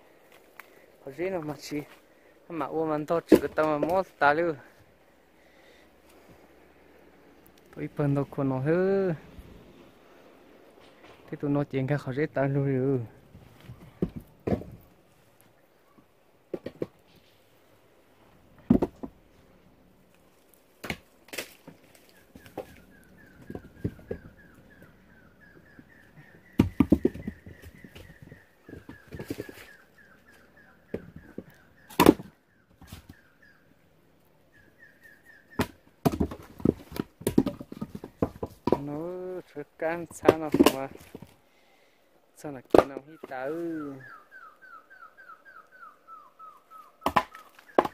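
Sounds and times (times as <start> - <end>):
firewood logs dropped on pile: 3.2 - 4.2, 13.3 - 14.9, 16.5 - 17.2, 18.6 - 19.3, 20.8 - 24.8, 26.5 - 29.8, 30.9 - 33.2, 35.5 - 39.1, 40.0 - 41.4, 42.7 - 43.4
wooden knocks and clatter: 13.6 - 14.9, 16.5 - 17.2, 18.6 - 19.3, 22.4 - 24.8, 25.5 - 29.8, 30.9 - 33.2, 35.5 - 39.1
faint high chirp: 43.1 - 47.8.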